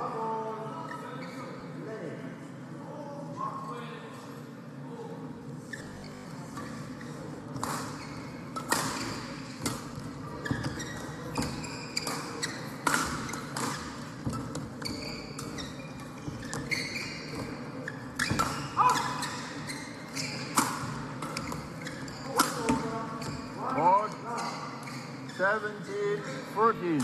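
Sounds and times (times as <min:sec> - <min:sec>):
shoes squeaking on court: 0:05.7 - 0:25.7.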